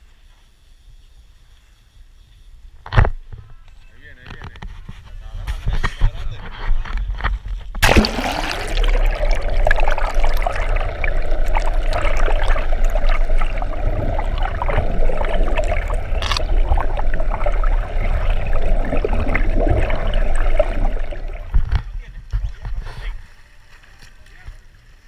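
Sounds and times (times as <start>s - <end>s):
low hum: 7.8s - 21.8s
underwater rush and gurgle: 7.8s - 22.0s
small clicks: 16.2s - 16.5s.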